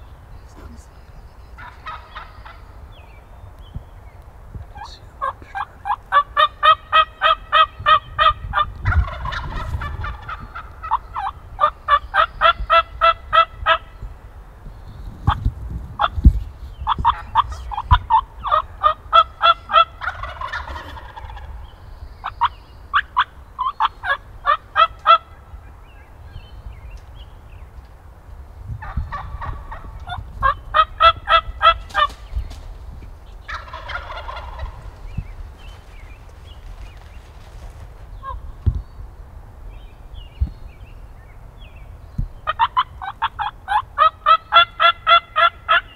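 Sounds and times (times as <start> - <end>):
turkeys gobbling: 1.6 - 2.7, 4.8 - 14.0, 16.0 - 16.2, 16.8 - 25.9, 28.8 - 32.6, 33.2 - 38.5, 42.4 - 45.9
turkeys yelping: 1.6 - 2.8, 4.8 - 14.0, 16.8 - 26.2, 28.8 - 38.5, 42.4 - 45.9.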